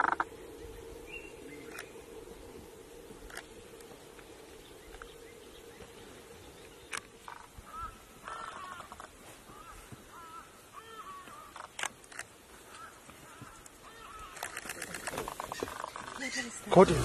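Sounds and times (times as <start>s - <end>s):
faint bird calls: 0.0s - 16.8s
sharp clicks: 1.7s - 2.0s, 6.8s - 7.4s, 11.4s - 12.8s.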